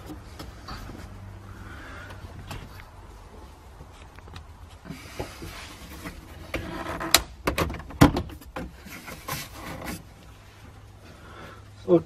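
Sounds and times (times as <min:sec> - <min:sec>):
plastic trim rubbing and scraping: 0:04.8 - 0:10.1.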